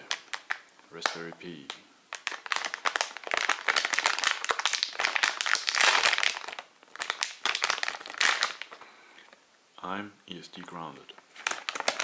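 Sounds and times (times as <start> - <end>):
plastic bag crinkling: 0.0 - 8.8, 11.2 - 12.0.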